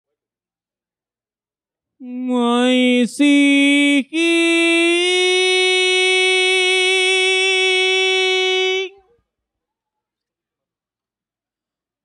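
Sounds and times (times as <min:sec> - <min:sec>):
person singing rising notes: 0:02.0 - 0:09.0.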